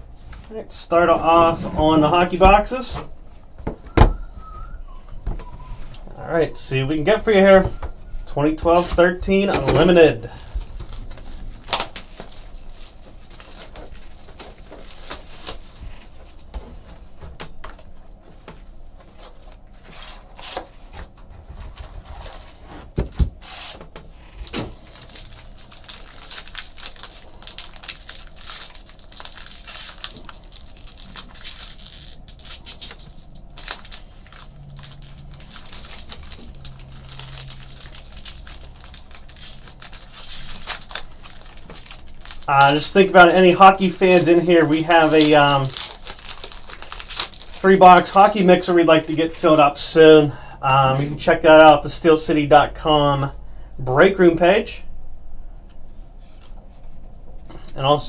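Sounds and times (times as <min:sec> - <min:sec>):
plastic wrapper crinkling and tearing: 0:10.2 - 0:16.5, 0:24.4 - 0:49.2
cards rustling: 0:23.4 - 0:48.7.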